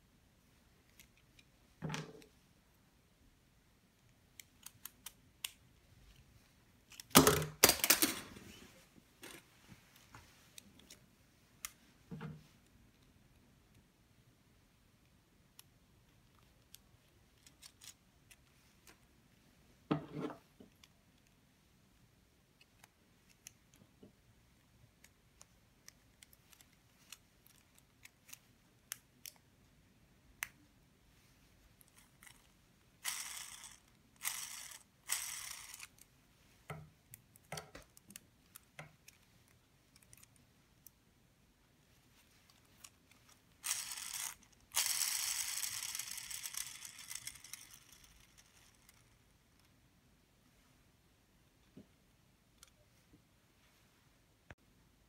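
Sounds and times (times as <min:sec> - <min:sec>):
plastic gears clicking: 0:16.3 - 0:18.5, 0:31.8 - 0:36.1, 0:42.6 - 0:49.7
gears whirring: 0:33.0 - 0:35.9, 0:43.6 - 0:49.0.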